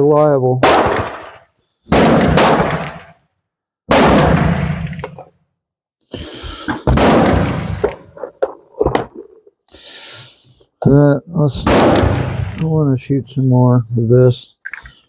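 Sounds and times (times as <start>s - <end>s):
pistol shots: 0.6s - 3.2s, 3.9s - 5.2s, 6.8s - 8.0s, 11.6s - 12.6s.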